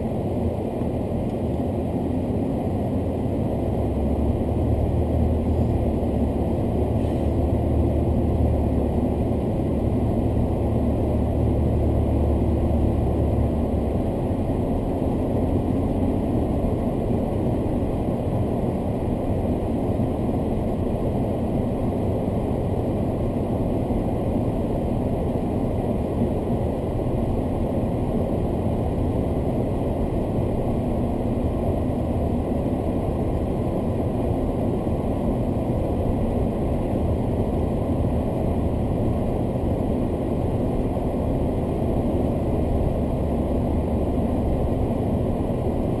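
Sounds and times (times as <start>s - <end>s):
car engine idling in cabin: 0.0s - 46.0s
road noise: 0.0s - 46.0s.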